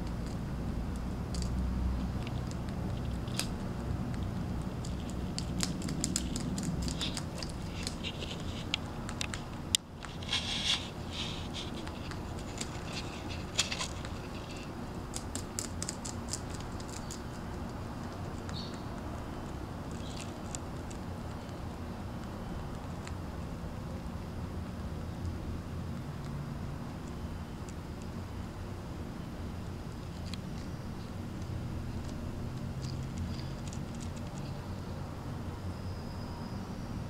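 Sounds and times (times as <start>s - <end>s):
rapid crunching clicks: 0.0s - 10.3s, 11.8s - 23.2s, 31.4s - 34.5s
rabbit gnawing on sticks: 0.0s - 35.0s.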